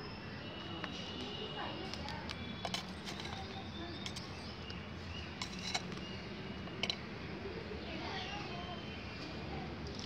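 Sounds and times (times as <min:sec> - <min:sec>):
sharp scrapes and clicks: 0:01.9 - 0:04.4, 0:05.4 - 0:06.0.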